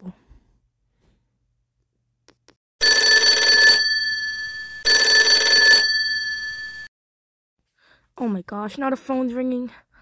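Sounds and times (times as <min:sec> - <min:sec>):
telephone ringing: 0:02.8 - 0:06.9.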